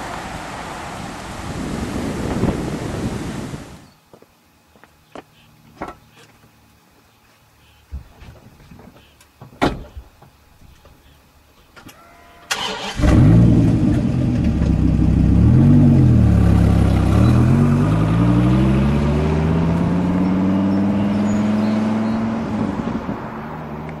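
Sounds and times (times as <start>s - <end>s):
engine cranking: 12.5s - 14.8s
car engine revving: 12.5s - 24.0s
car pulling away: 12.5s - 24.0s.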